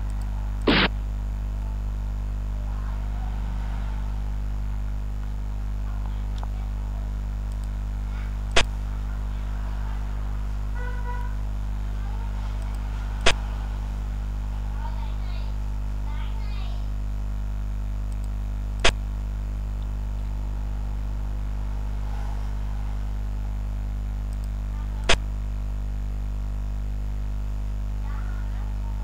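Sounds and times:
short sharp clicks: 0:00.0 - 0:00.9
low electrical hum: 0:00.0 - 0:29.0.

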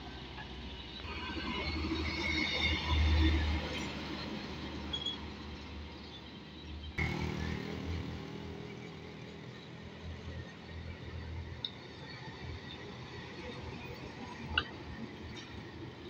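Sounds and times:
road traffic hum: 0:00.0 - 0:16.0
truck diesel engine passing: 0:07.0 - 0:11.1.

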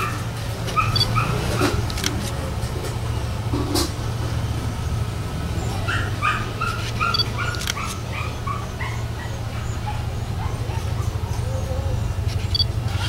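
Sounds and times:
animal yipping: 0:00.0 - 0:02.1, 0:05.6 - 0:13.0
sharp clicks: 0:00.9 - 0:02.4, 0:06.8 - 0:08.0.

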